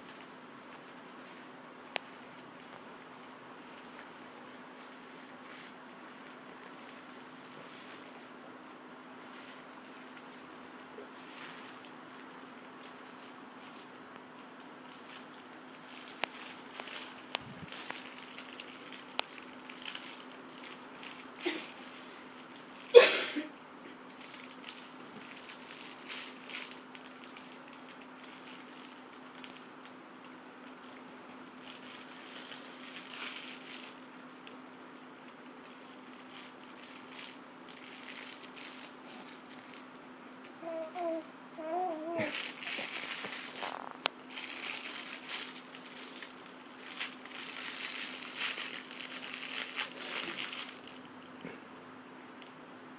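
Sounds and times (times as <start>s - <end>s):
cloth book rustling and crinkling: 0.1s - 22.8s, 30.2s - 34.7s, 40.7s - 51.1s
baby cooing: 40.6s - 44.0s.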